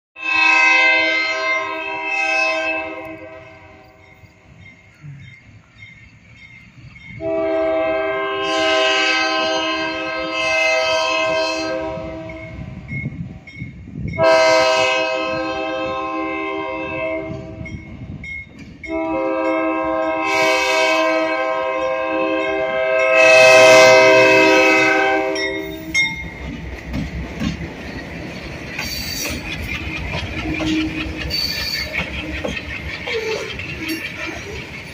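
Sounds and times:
locomotive air horn blasts: 0.2 - 4.0, 7.2 - 12.6, 14.2 - 17.7, 18.9 - 25.9.

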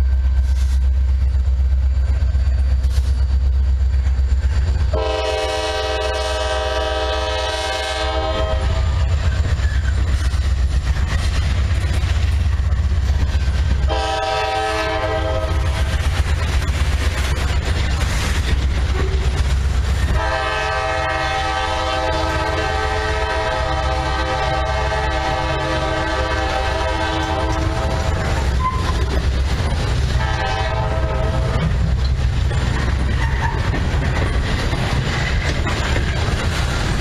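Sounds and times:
boxcars rumbling and clacking: 0.0 - 5.6, 8.5 - 37.0
distant train horn chord: 4.9 - 9.1, 13.8 - 15.9, 20.1 - 28.7, 30.1 - 31.8.

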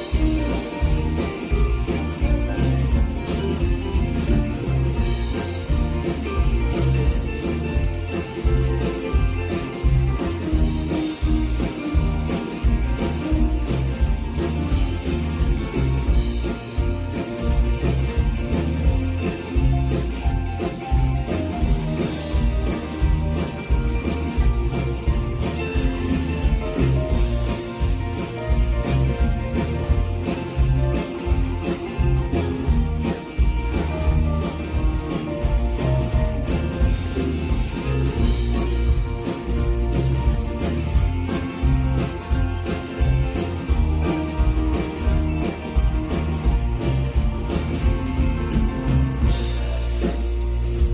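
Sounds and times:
bass: 0.0 - 50.9
drum kit beat: 0.0 - 50.9
strummed guitars: 0.0 - 50.9.

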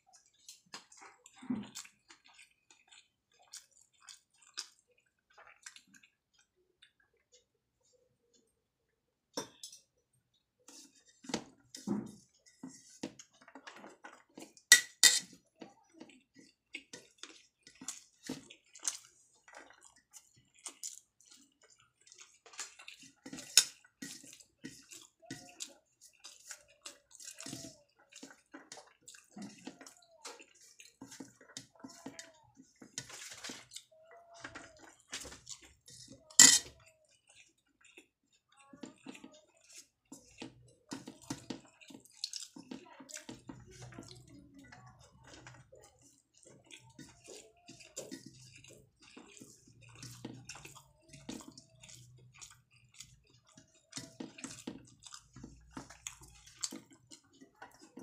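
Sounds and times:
wet chewing and lip smacks: 0.1 - 7.5, 16.1 - 25.2, 25.9 - 31.6, 37.1 - 42.8, 45.2 - 58.0.

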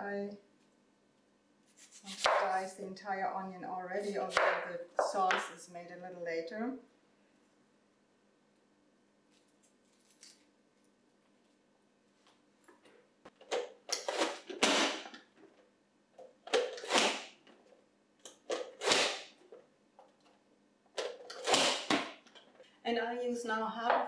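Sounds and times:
onion crunching through blades: 9.8 - 10.5.

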